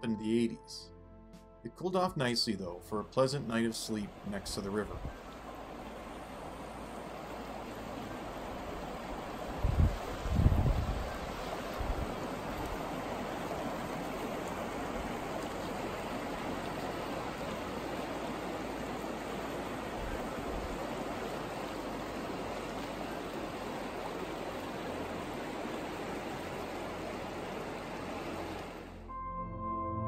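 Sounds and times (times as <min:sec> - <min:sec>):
river rushing over rocks: 0:05.1 - 0:28.9.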